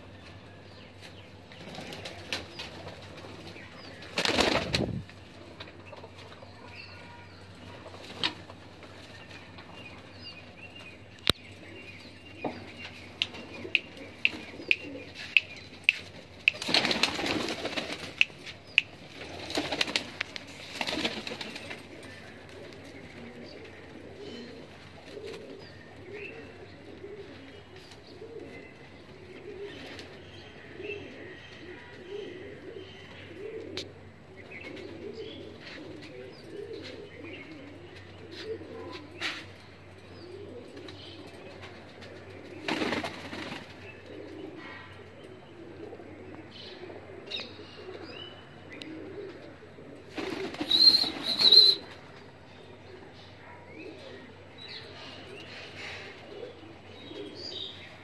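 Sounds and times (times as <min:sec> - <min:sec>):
pigeons cooing: 0:01.6 - 0:58.0
pigeon wings flapping: 0:04.1 - 0:05.0, 0:16.4 - 0:18.5, 0:19.1 - 0:22.0, 0:42.6 - 0:43.8, 0:50.1 - 0:51.8.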